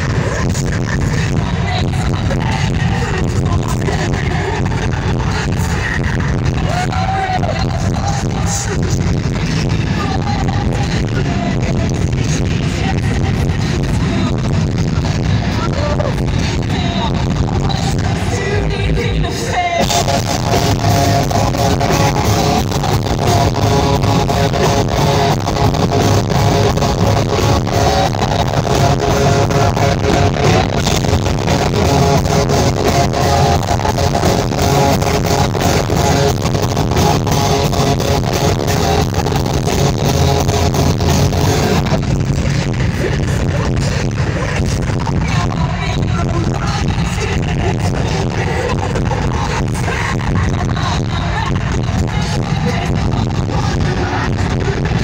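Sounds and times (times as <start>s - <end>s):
electric guitar: 0.0s - 55.0s
live band music: 19.3s - 41.9s.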